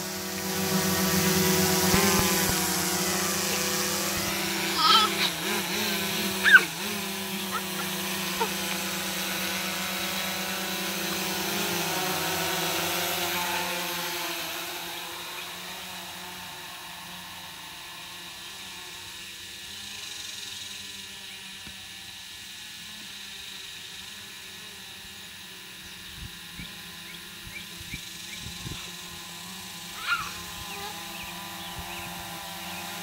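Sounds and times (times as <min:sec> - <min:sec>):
drone propellers whining: 0:00.0 - 0:33.0.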